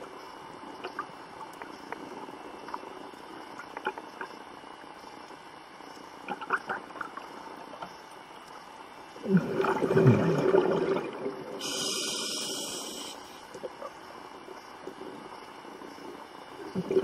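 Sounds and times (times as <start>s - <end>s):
gurgling rush of exhaled bubbles: 9.2s - 12.4s, 16.7s - 17.0s
air hissing through regulator: 11.5s - 13.5s.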